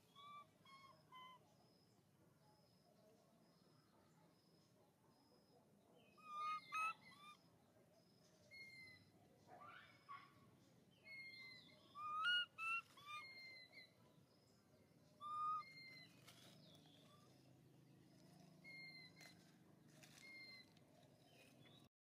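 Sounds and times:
baby monkey coo calls: 0:00.0 - 0:01.4, 0:06.2 - 0:07.4, 0:11.1 - 0:14.0, 0:15.2 - 0:16.6, 0:18.6 - 0:19.4, 0:20.0 - 0:20.8
bird two-tone whistle: 0:00.0 - 0:01.4, 0:11.0 - 0:14.0, 0:15.2 - 0:16.2.

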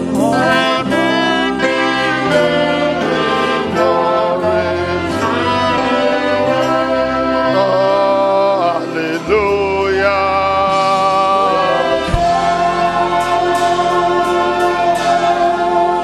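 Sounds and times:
sliding instrumental melody: 0:00.0 - 0:16.0
sustained chords: 0:00.0 - 0:16.0
low bass line: 0:09.2 - 0:16.0.

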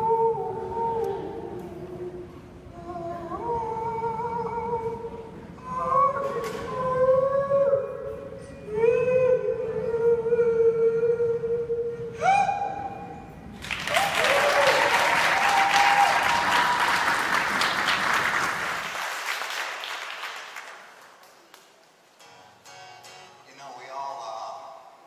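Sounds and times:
woman singing into a microphone: 0:00.0 - 0:13.2
audience applause: 0:13.6 - 0:21.9.

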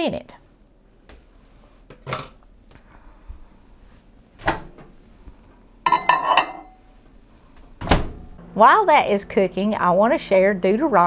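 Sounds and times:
mug and spoon clinking: 0:05.9 - 0:06.8.

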